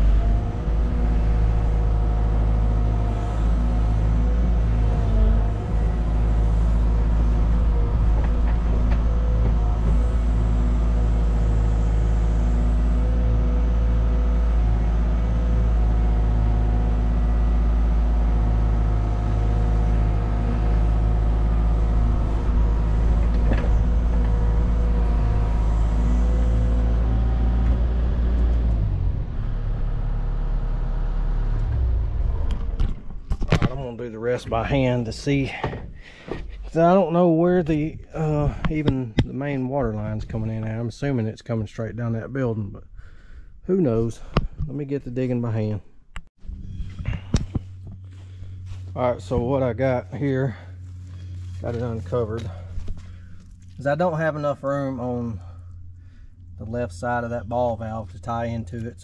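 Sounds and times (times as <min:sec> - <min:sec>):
excavator diesel engine under load: 0:00.0 - 0:33.3, 0:46.8 - 0:59.0.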